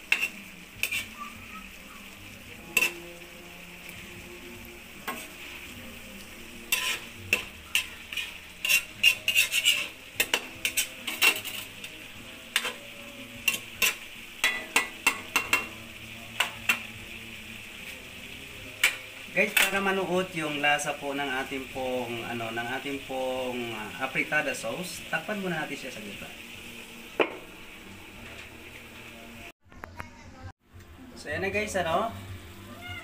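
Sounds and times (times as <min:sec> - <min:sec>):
utensil scraping a wok: 0:00.0 - 0:01.4, 0:02.4 - 0:04.0, 0:04.8 - 0:27.5
sauce sizzling: 0:00.0 - 0:29.6, 0:30.6 - 0:33.0.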